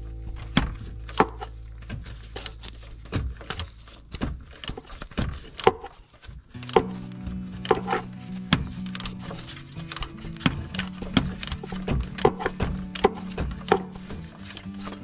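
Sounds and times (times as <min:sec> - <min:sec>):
background music with held chords: 0:06.6 - 0:15.0.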